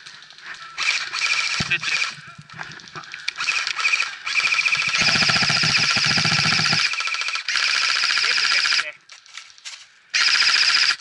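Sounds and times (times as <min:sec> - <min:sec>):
airsoft guns firing: 0:00.8 - 0:02.2, 0:03.4 - 0:08.9, 0:10.2 - 0:11.0.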